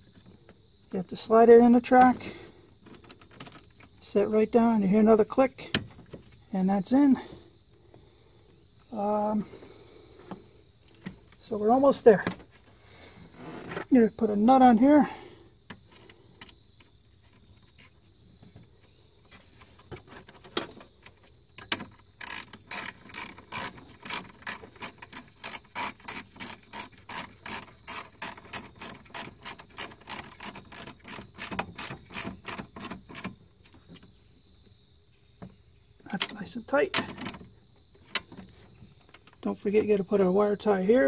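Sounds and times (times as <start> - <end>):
ratchet wrench clicking: 22.2 - 33.2.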